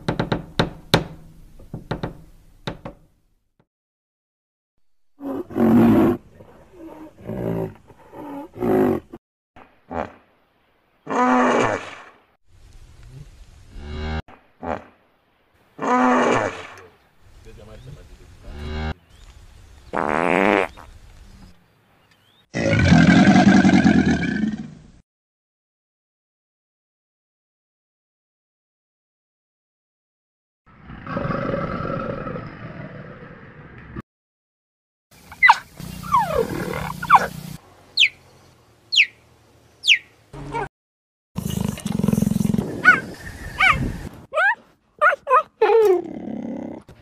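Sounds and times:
large animal calling: 35.3s - 37.3s
cheetah chirping: 35.3s - 37.4s, 38.0s - 38.2s, 38.9s - 39.2s, 39.8s - 40.7s, 41.7s - 45.4s.

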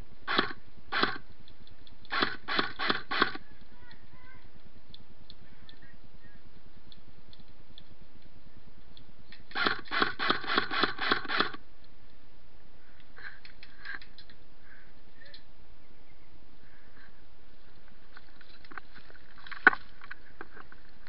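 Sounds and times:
airsoft rifle shots: 0.3s - 1.3s, 2.1s - 3.4s, 9.5s - 11.6s.

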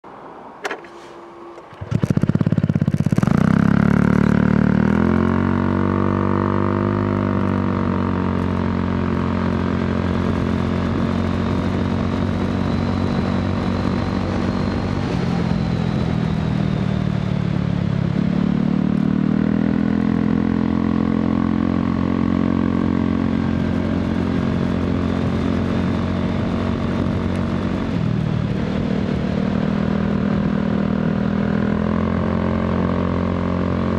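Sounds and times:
scooter engine revving: 1.5s - 16.9s.

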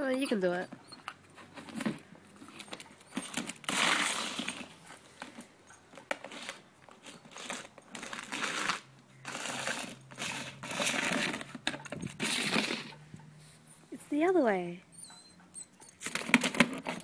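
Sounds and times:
plastic box scraping on concrete: 1.1s - 5.4s, 6.0s - 13.2s, 16.0s - 17.0s.

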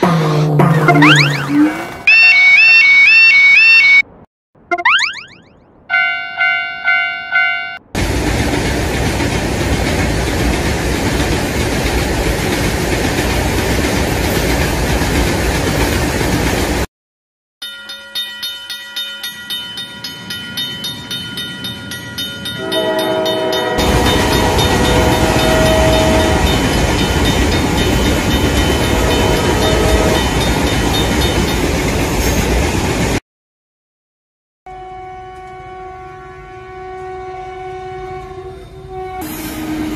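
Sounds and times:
train horn: 5.9s - 7.8s, 22.6s - 26.8s, 28.8s - 30.4s, 34.7s - 39.9s
train running rumble: 8.0s - 16.9s, 19.9s - 33.2s
level-crossing bell clanging: 17.6s - 31.8s.

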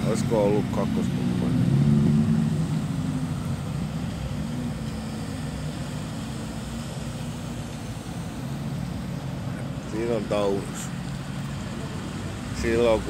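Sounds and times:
car engine passing: 0.0s - 13.0s
pickup truck low rumble: 0.0s - 13.0s.

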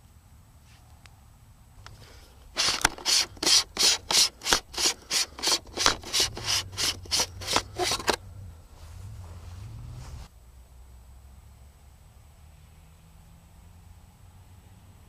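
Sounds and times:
hand rubbing against microphone: 2.6s - 10.3s.

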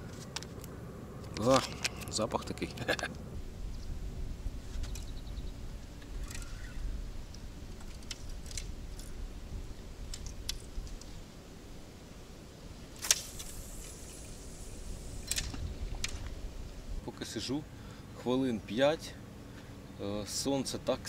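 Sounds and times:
fishing line hiss: 12.8s - 17.0s
fishing rod cast snap: 13.0s - 14.4s
fishing reel clicks and rattles: 13.0s - 16.3s.

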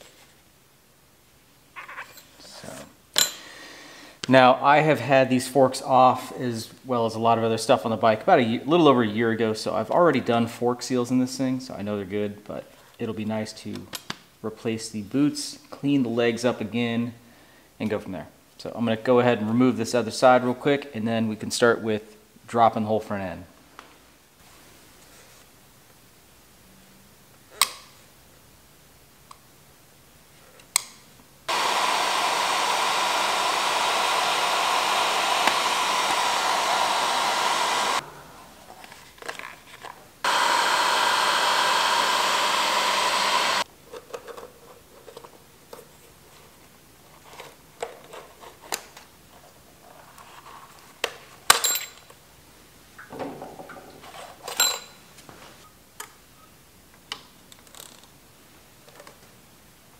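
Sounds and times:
heat gun blowing: 31.5s - 38.0s, 40.2s - 43.7s.

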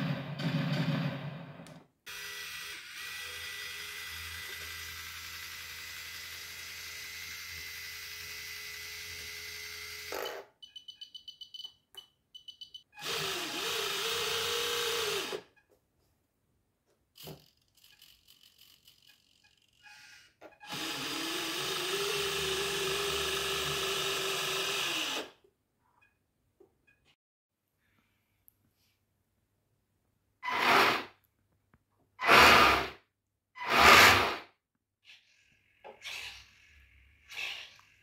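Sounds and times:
small electric motors whirring: 2.1s - 10.2s.

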